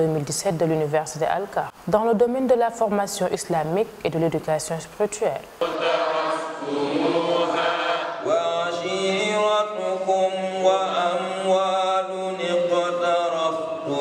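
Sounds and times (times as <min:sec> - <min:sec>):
melodic chanted recitation: 0:05.6 - 0:14.0.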